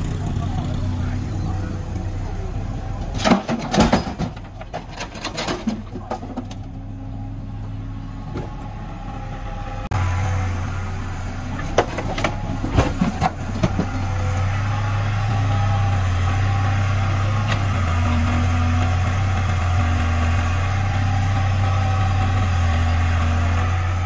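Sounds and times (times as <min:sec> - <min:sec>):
excavator diesel engine running: 0:00.0 - 0:24.0
bricks dropping into steel truck bed: 0:03.2 - 0:06.6.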